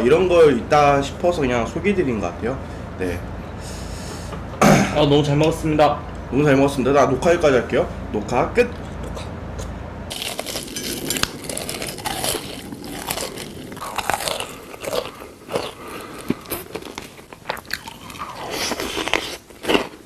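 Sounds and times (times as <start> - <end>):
person eating crunchy food: 10.1 - 20.0.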